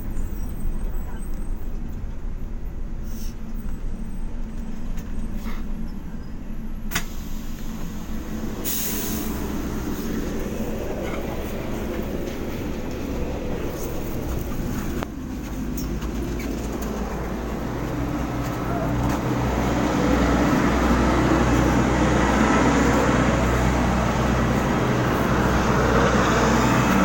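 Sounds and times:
bus engine and road rumble: 0.0s - 27.0s
short hiss of air: 6.9s - 10.1s.

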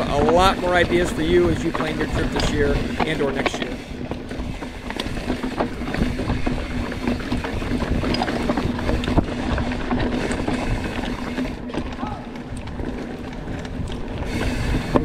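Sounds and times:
bike rattling: 0.0s - 15.0s
bike tyres clattering over rock: 0.0s - 15.0s
wind rumble on microphone: 0.0s - 15.0s.

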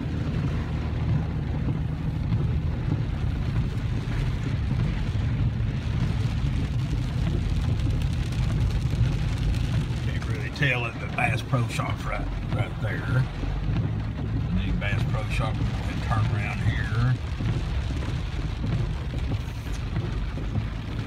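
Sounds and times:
car engine and tyres rumbling: 0.0s - 21.0s
hiss of wet spray and rain: 0.0s - 21.0s.

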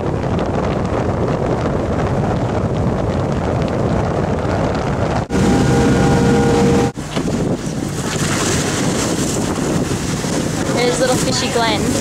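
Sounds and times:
wind buffeting microphone: 0.0s - 12.0s
steady hum: 5.3s - 7.7s.

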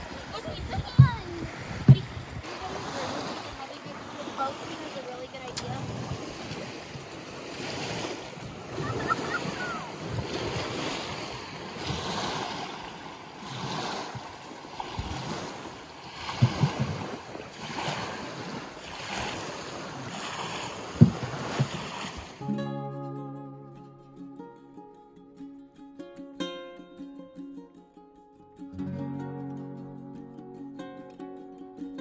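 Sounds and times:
wind buffeting microphone: 0.0s - 18.7s
small waves lapping on shore: 0.0s - 22.8s.

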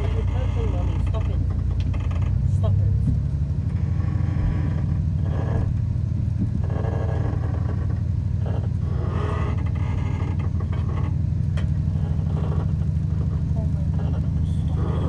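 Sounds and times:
railcar engine low throb: 0.0s - 15.0s.

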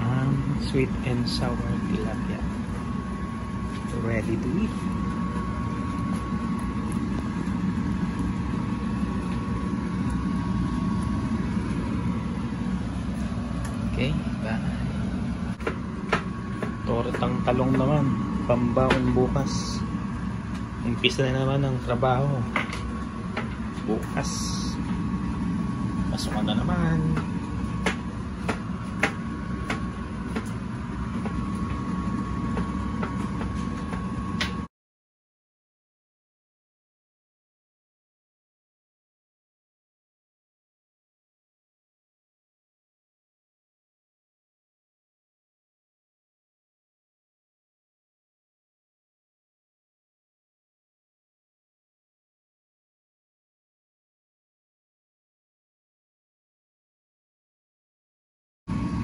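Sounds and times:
mechanical hum of motor: 0.0s - 34.7s, 58.7s - 59.0s
thin steady whine: 0.0s - 34.7s, 58.7s - 59.0s.

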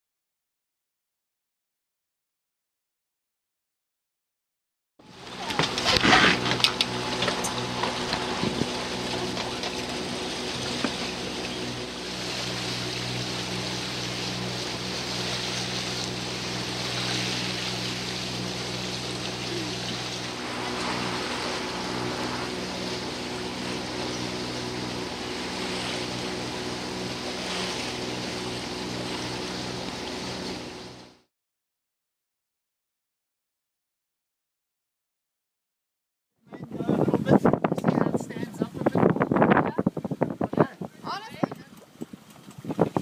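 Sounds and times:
boat engine humming: 5.0s - 31.3s, 36.5s - 43.0s
wind and water rushing: 5.0s - 31.3s, 36.5s - 43.0s.

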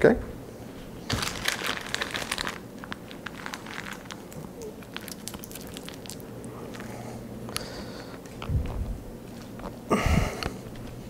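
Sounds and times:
rustling and crinkling: 0.8s - 7.0s.

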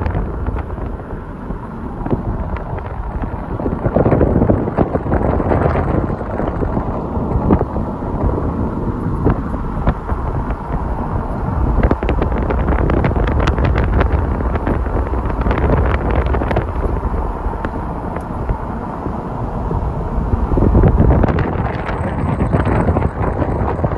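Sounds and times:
road and tyre rumble: 0.0s - 23.9s
wind buffeting microphone: 0.0s - 23.9s
short crackles and ticks: 11.8s - 18.6s.

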